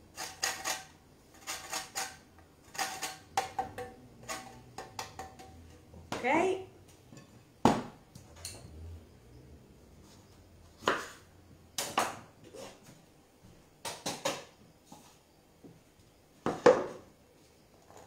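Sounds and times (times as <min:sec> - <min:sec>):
kitchen items knocking on wood: 0:03.3 - 0:04.0, 0:07.6 - 0:08.0.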